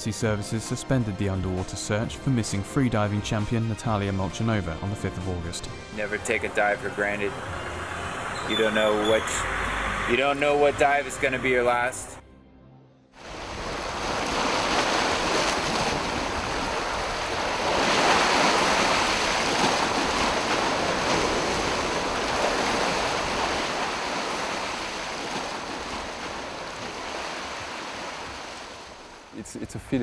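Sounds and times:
sea waves washing over rocks: 13.2s - 29.4s.

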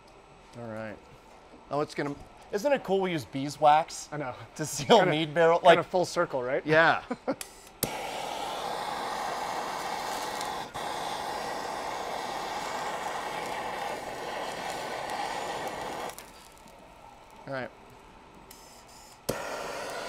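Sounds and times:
gas torch click: 7.4s - 16.8s, 18.5s - 20.0s
gas torch hissing: 7.4s - 20.0s.

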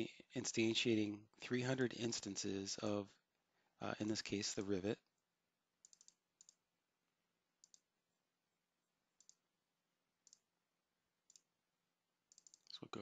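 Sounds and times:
computer mouse double-clicks: 5.8s - 6.6s, 7.6s - 7.8s, 12.3s - 12.7s.

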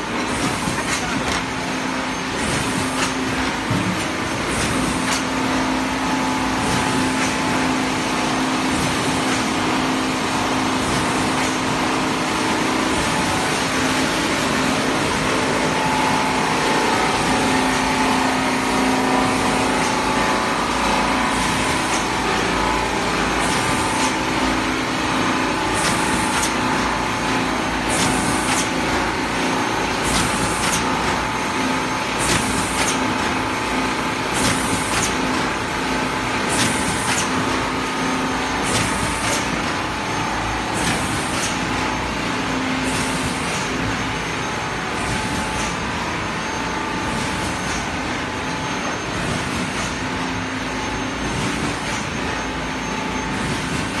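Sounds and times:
steady mechanical hum: 0.0s - 54.0s.

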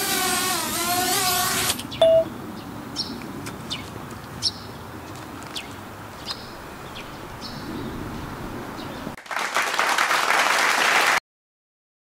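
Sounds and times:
low outdoor background noise: 0.1s - 9.2s
birds chirping: 1.8s - 9.2s
burst of applause: 9.2s - 11.2s.

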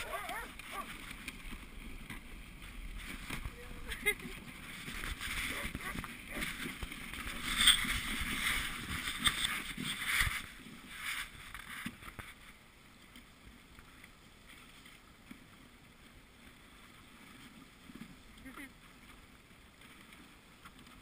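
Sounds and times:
sled runners hissing over snow: 0.0s - 12.3s.

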